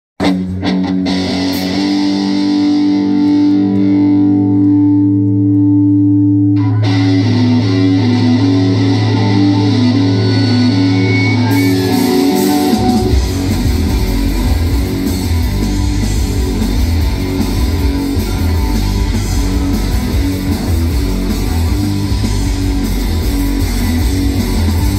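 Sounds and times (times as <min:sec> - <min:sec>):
distorted electric guitar riff: 0:00.2 - 0:24.9
live rock band: 0:00.2 - 0:24.9
cymbals: 0:10.7 - 0:15.8.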